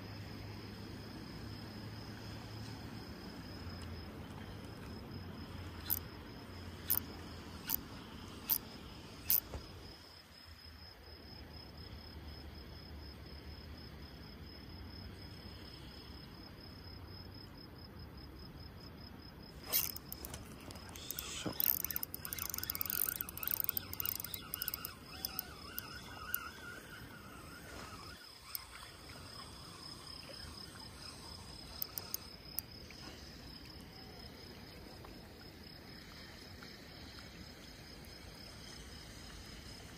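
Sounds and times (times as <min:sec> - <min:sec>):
high-pitched insect trill: 0:05.1 - 0:10.9, 0:19.4 - 0:34.5
sharp clicks: 0:19.7 - 0:26.5, 0:31.8 - 0:32.6.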